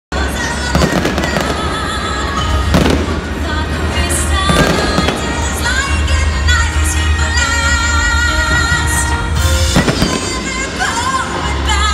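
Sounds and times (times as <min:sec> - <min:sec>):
music over sound system: 0:00.1 - 0:11.9
fireworks bursting: 0:00.3 - 0:06.2, 0:08.5 - 0:11.2.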